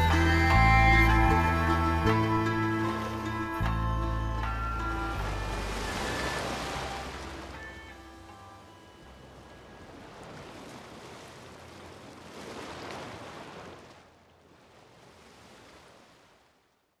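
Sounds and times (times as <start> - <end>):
surf washing in: 4.8 - 8.4, 9.2 - 16.7.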